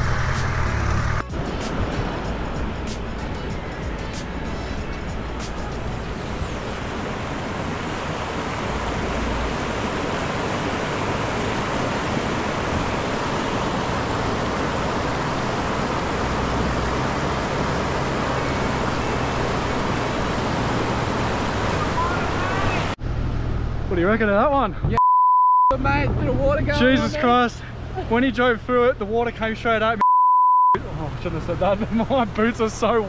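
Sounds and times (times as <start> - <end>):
vehicle engine running low: 0.0 - 24.4
water rushing over rapids: 1.4 - 23.0.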